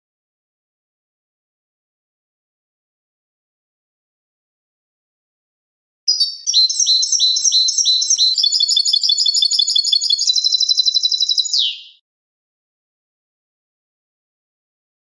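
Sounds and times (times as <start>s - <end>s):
finch singing chirps and trill: 6.1s - 12.0s.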